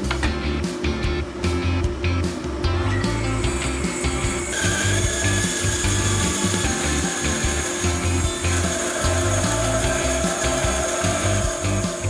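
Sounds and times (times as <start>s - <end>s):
steady higher tone: 2.6s - 12.0s
bandsaw cutting wood: 3.3s - 12.0s.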